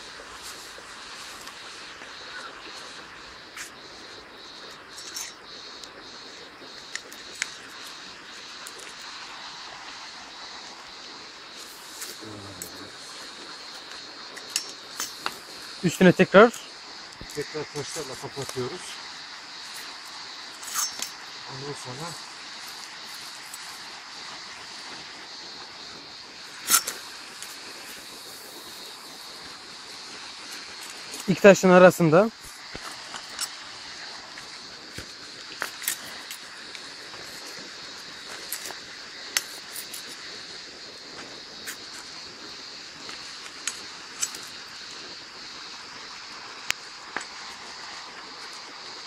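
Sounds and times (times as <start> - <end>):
steady outdoor hiss: 0.0 - 49.0
shovel stirring fire: 0.1 - 45.2.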